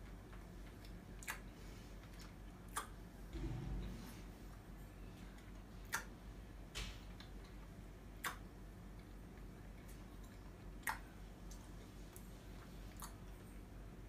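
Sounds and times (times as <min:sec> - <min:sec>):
person chewing with mouth closed: 0:00.6 - 0:03.0, 0:09.0 - 0:13.4
sticky mouth clicks: 0:00.8 - 0:01.5, 0:02.2 - 0:03.0, 0:05.8 - 0:06.1, 0:08.2 - 0:08.4, 0:10.8 - 0:11.6.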